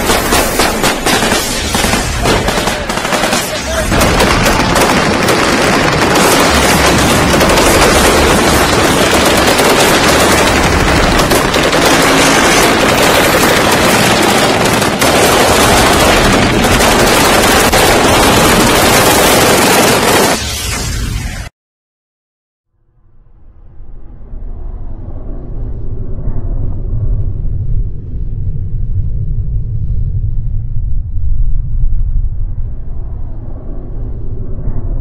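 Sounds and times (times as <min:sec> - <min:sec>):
automatic gunfire: 0:00.0 - 0:20.4.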